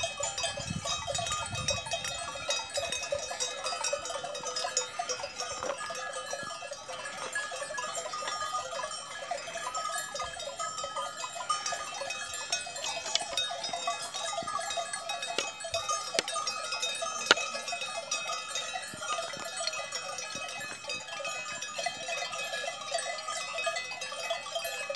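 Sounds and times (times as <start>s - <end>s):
cattle bells clanking: 0.0s - 24.9s.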